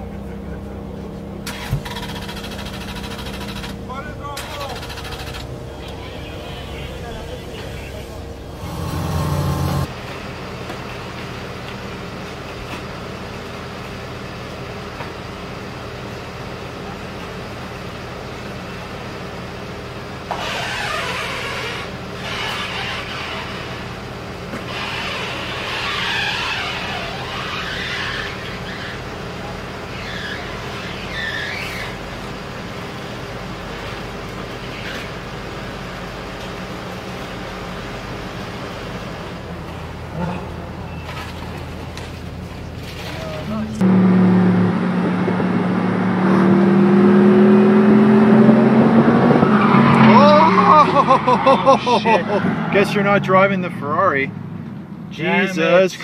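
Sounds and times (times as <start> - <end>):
vehicle engine idling: 0.0 - 44.1
outdoor noise: 0.0 - 56.0.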